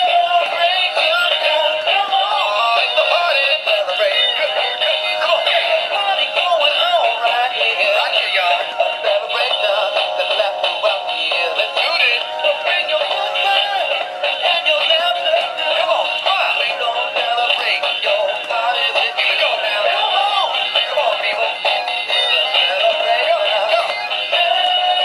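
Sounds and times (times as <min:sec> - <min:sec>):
tinny song from toy speaker: 0:00.0 - 0:25.0.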